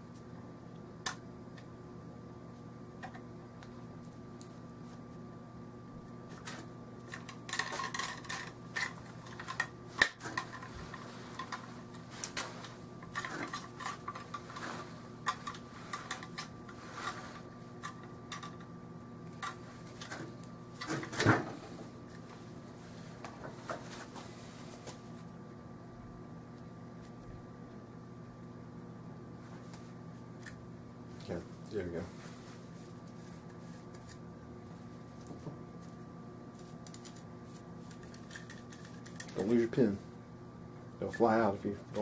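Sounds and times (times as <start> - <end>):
faint steady hum: 0.0 - 42.0
rifle metal clicks and rattles: 37.9 - 39.6.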